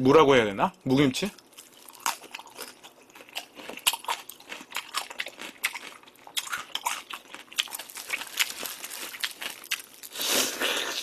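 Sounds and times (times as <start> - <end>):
wet crunchy chewing: 1.4 - 11.0.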